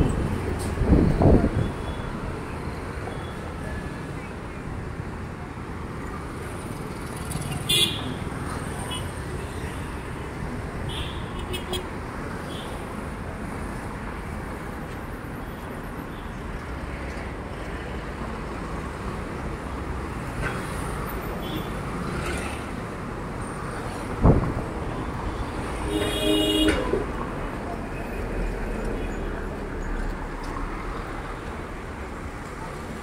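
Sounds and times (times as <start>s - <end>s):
street traffic hum: 0.0s - 33.0s.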